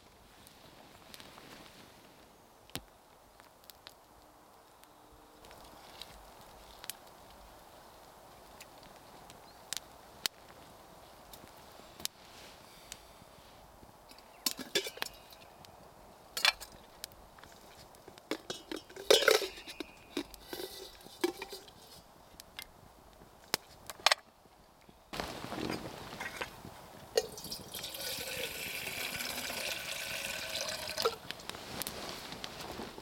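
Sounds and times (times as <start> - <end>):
metal cookware clinking: 14.5 - 15.2, 18.4 - 21.8.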